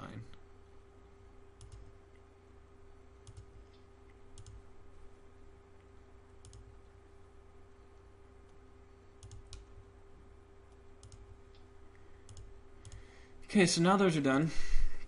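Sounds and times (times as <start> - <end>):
faint steady hum: 0.0 - 15.0
computer mouse clicks: 1.6 - 1.9, 3.2 - 4.6, 6.4 - 7.0, 9.2 - 9.8, 10.7 - 13.1.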